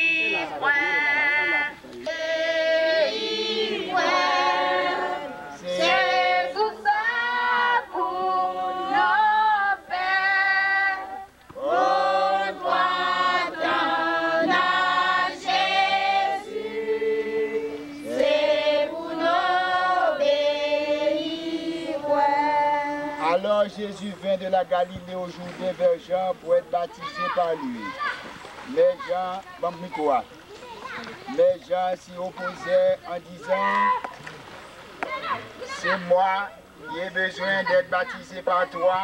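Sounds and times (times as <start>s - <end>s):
congregation singing a hymn: 0.0s - 26.8s.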